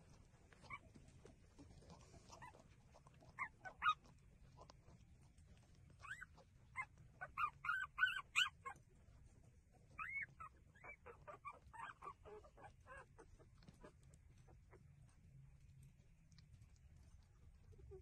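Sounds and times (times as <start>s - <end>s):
puppies squeaking and whimpering: 0.6s - 1.0s, 3.3s - 4.1s, 6.0s - 8.8s, 9.9s - 14.8s.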